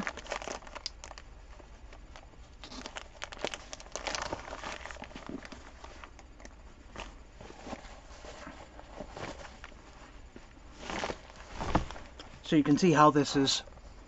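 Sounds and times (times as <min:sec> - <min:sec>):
nylon bag rustling and crinkling: 0:00.0 - 0:01.2, 0:02.6 - 0:06.1, 0:10.7 - 0:12.2.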